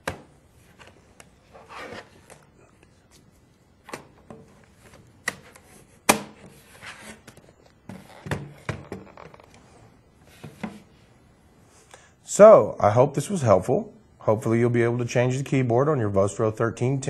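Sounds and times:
soft rubbing: 0:00.5 - 0:03.6.

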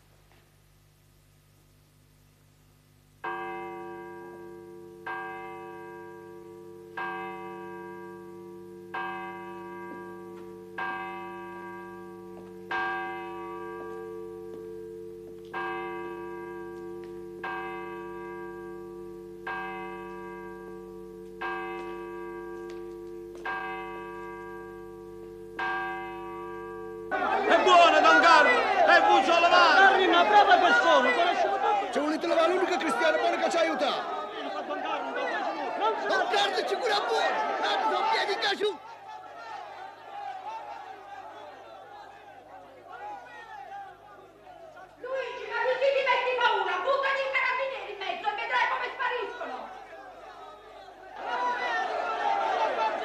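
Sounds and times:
church bell tolling: 0:03.2 - 0:30.0.

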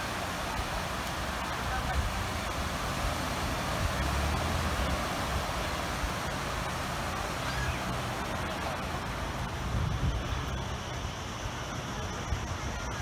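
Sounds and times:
surf washing on beach: 0:00.0 - 0:13.0
wind rumble on microphone: 0:00.6 - 0:13.0.

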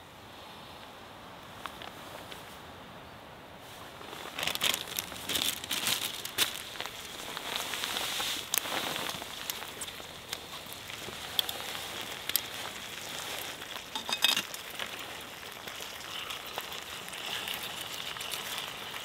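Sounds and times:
bacon and sausage sizzling: 0:05.6 - 0:19.0.

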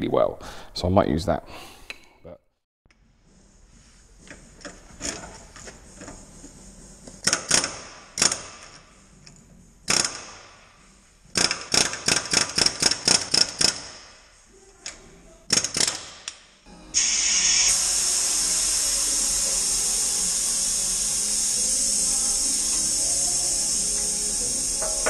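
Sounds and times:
pneumatic air chisel bursts: 0:07.2 - 0:08.8, 0:09.9 - 0:10.4, 0:11.3 - 0:14.1, 0:17.0 - 0:25.0.

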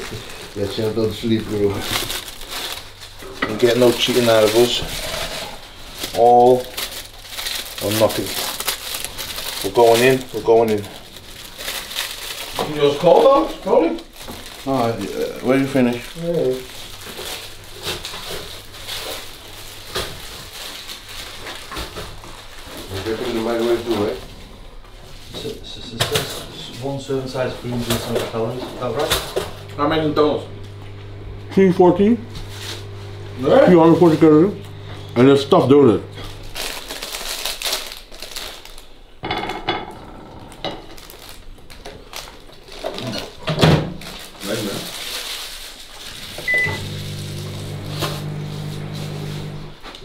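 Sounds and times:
sharp foil crackle: 0:00.0 - 0:24.4, 0:32.0 - 0:39.2, 0:40.6 - 0:49.4
foil wrappers crinkling: 0:00.0 - 0:39.3, 0:40.4 - 0:50.0
brief tone: 0:46.5 - 0:46.8.

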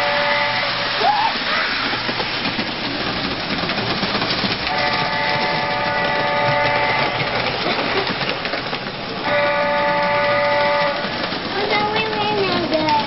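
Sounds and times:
model train horn: 0:00.0 - 0:01.0, 0:04.7 - 0:07.3, 0:09.2 - 0:11.1
model train rattling on track: 0:00.0 - 0:13.0.

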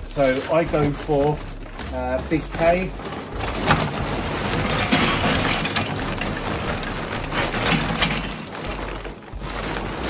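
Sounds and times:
charcoal lumps clattering: 0:00.0 - 0:10.0
paper sack rustling: 0:00.0 - 0:10.0.

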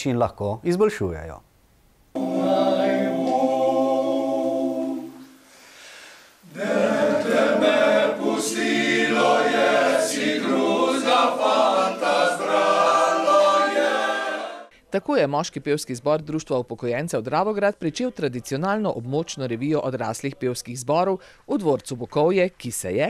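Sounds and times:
men's choir singing a cappella: 0:02.2 - 0:05.4, 0:06.5 - 0:14.7.

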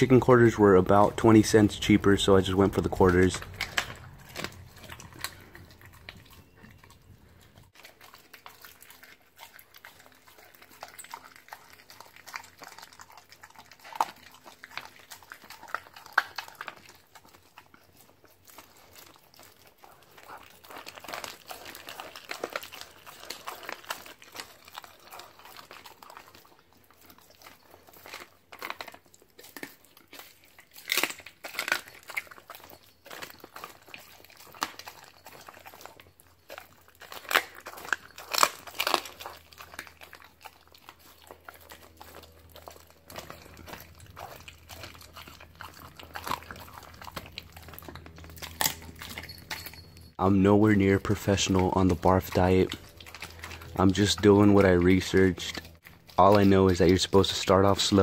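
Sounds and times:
dog chewing and crunching bone: 0:00.0 - 0:58.0
plastic bag crinkling: 0:00.0 - 0:58.0.

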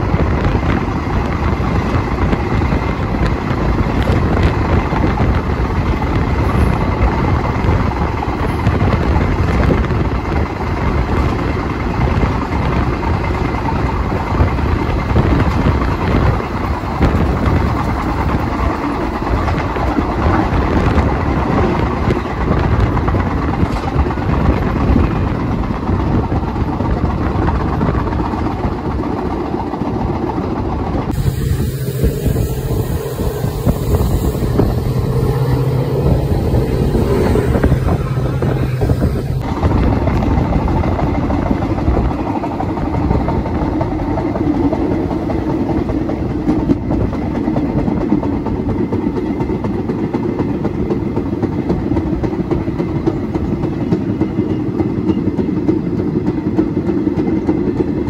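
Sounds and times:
train rumbling on rails: 0:00.0 - 0:58.0
low droning hum: 0:31.2 - 0:39.5.

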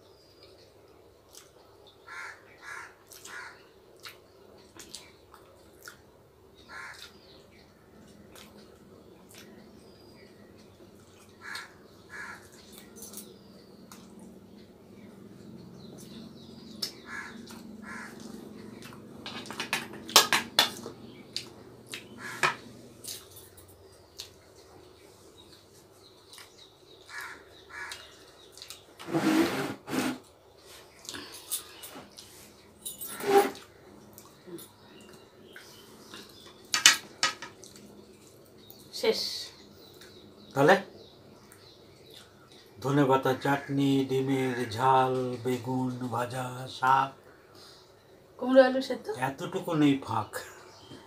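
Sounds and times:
people eating with lip smacks: 0:00.4 - 0:01.6, 0:03.0 - 0:06.1, 0:08.0 - 0:09.6, 0:13.8 - 0:14.7, 0:24.1 - 0:26.7, 0:27.9 - 0:28.9, 0:30.9 - 0:32.6, 0:33.6 - 0:36.7, 0:37.6 - 0:38.9
crow cawing: 0:02.1 - 0:03.6, 0:06.7 - 0:07.1, 0:11.4 - 0:12.6, 0:16.9 - 0:18.4, 0:22.1 - 0:22.6, 0:27.1 - 0:28.2.

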